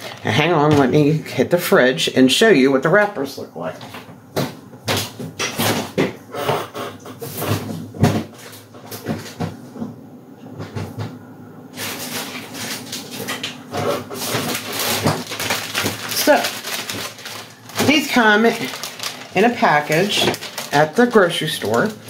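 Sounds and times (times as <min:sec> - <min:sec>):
packages knocking and clunking: 0:04.0 - 0:06.6, 0:07.2 - 0:10.0, 0:11.8 - 0:22.0.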